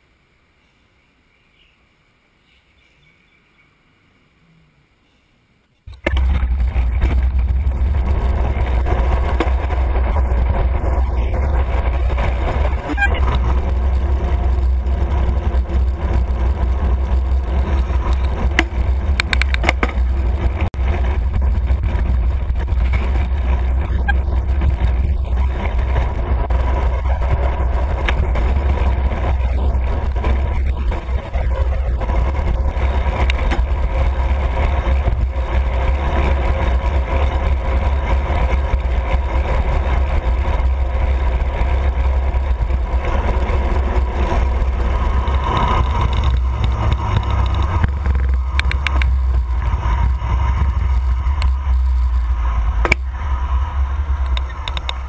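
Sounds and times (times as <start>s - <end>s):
passing road traffic: 0.0s - 55.0s
wind rumble on microphone: 5.9s - 55.0s.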